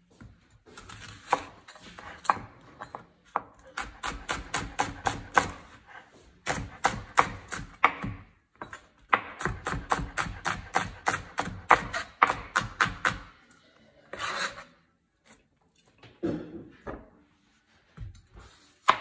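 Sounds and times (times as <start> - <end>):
knife chopping on cutting board: 3.4 - 5.8, 6.4 - 13.2.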